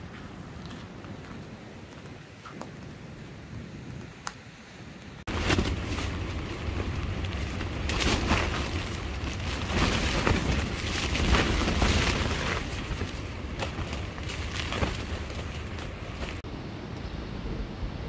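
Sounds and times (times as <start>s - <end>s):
wind rumble on microphone: 0.0s - 18.0s
tent fabric flapping: 5.2s - 16.5s.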